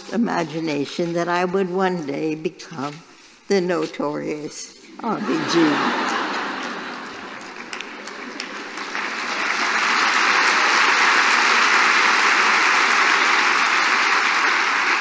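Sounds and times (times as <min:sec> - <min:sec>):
audience applause: 0:05.2 - 0:15.0.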